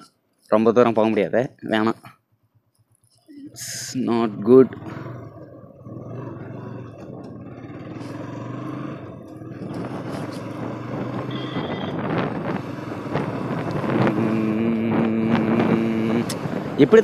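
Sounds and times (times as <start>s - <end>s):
motorcycle engine accelerating: 3.5s - 17.0s
wind and road noise: 3.5s - 17.0s
steady droning tone: 13.7s - 16.5s.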